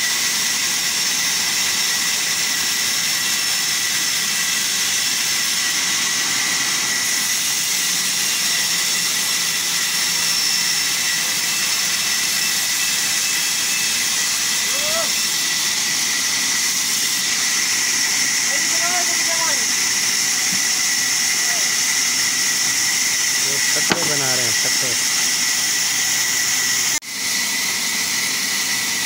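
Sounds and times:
band saw whine: 0:00.0 - 0:29.0
blade cutting wood hiss: 0:00.0 - 0:29.0.

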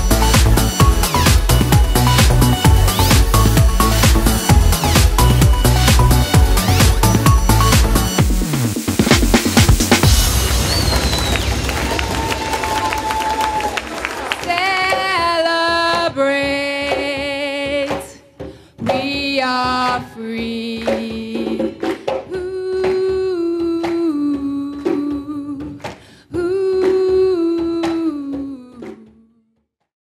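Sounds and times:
group clapping along: 0:00.0 - 0:08.2, 0:09.1 - 0:18.2, 0:20.8 - 0:28.1
woman singing into microphone: 0:14.4 - 0:29.4.

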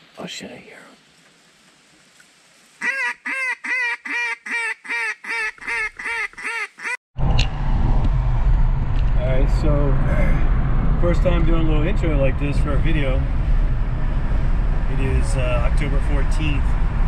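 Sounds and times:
duck quacking: 0:02.8 - 0:07.0
vehicle cabin road rumble: 0:07.2 - 0:17.0.

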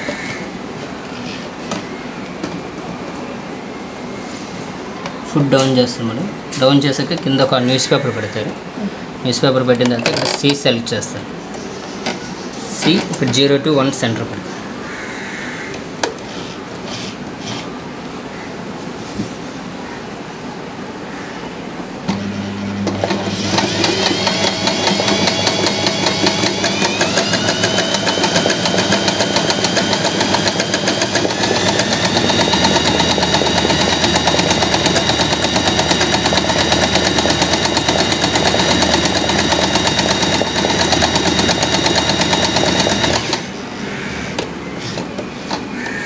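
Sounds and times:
sewing machine running: 0:22.1 - 0:43.5.

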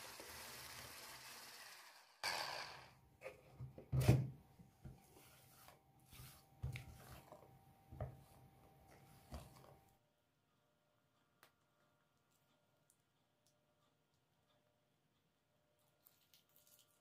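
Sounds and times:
spatula scraping a jug: 0:05.1 - 0:07.5.

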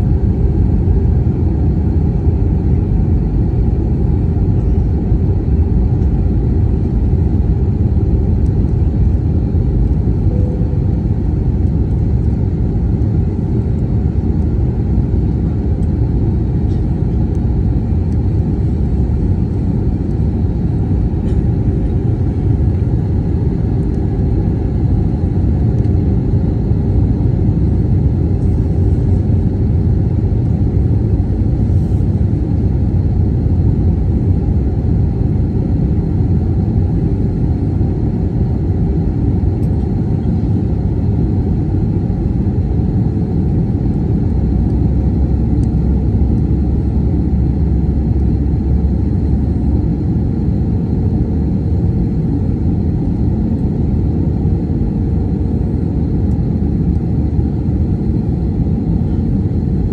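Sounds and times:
airliner cabin engine rumble: 0:00.0 - 0:59.9.

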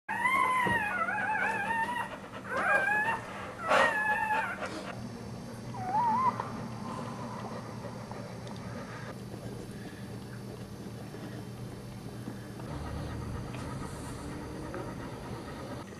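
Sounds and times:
dog whimpering: 0:00.1 - 0:05.0, 0:05.7 - 0:07.6, 0:12.7 - 0:15.9.

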